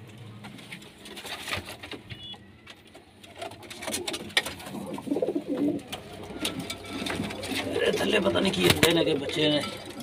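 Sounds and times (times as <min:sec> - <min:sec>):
pigeons cooing: 0:03.2 - 0:10.0.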